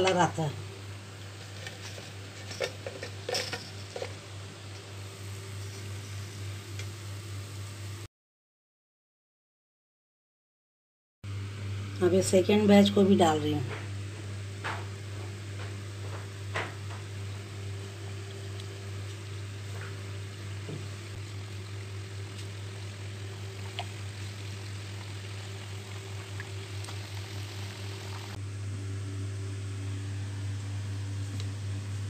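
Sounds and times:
oil sizzling and bubbling: 0.6s - 8.1s, 14.4s - 28.4s
low hum: 11.3s - 32.0s.

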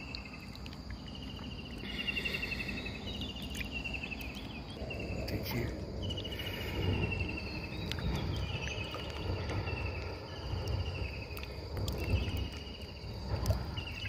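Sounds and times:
small clicks and drips: 0.0s - 4.7s, 7.7s - 14.0s
insects chirping in pulsed trills: 0.0s - 14.0s.

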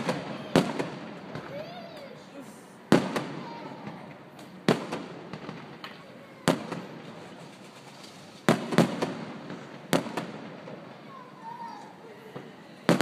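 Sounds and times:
firework shells bursting: 2.9s - 11.1s.

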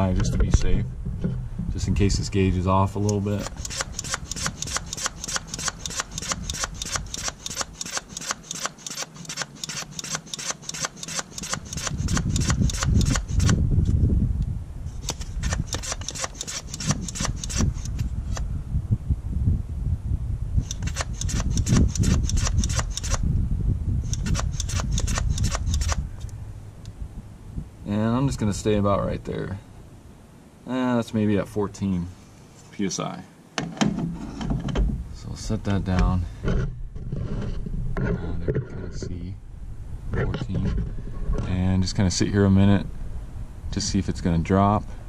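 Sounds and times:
low rumble: 0.0s - 3.0s
hand pump rasping strokes: 3.1s - 13.6s, 15.0s - 18.4s, 20.6s - 23.2s, 24.1s - 26.0s.

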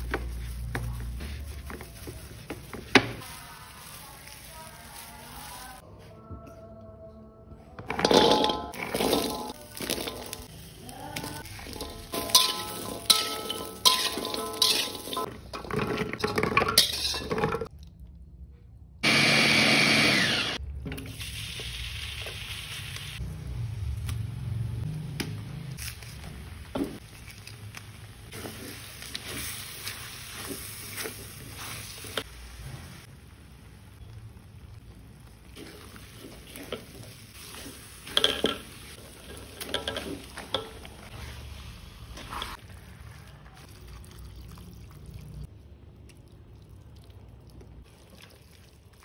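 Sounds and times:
vegetables clinking into metal wok: 7.8s - 10.6s, 11.2s - 17.7s, 35.6s - 41.1s
blender running: 19.0s - 20.6s
paste sizzling in oil: 26.6s - 34.1s, 35.0s - 42.8s.

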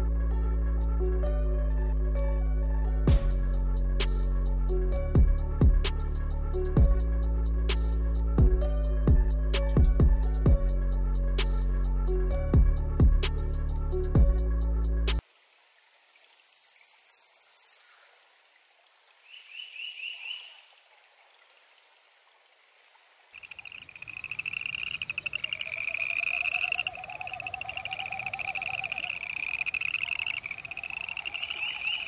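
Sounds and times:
frogs chirping: 19.3s - 21.0s, 23.3s - 32.0s
frog chorus trilling: 23.4s - 32.0s.

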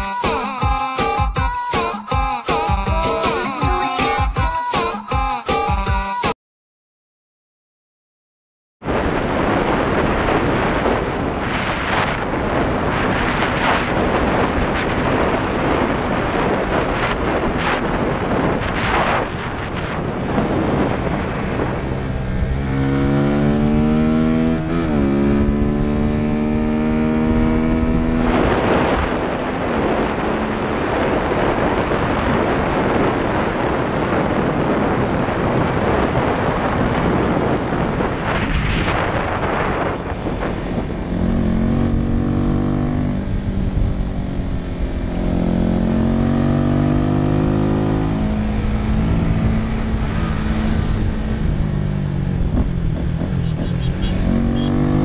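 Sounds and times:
wind rush on microphone: 8.8s - 55.0s
motorcycle engine revving: 20.3s - 33.4s, 38.3s - 55.0s.

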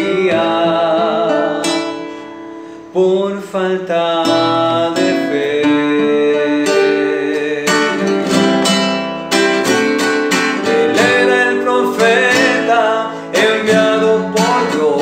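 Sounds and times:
man singing a hymn: 0.0s - 2.1s, 2.8s - 8.2s, 10.6s - 15.0s
classical guitar strummed: 0.0s - 15.0s.

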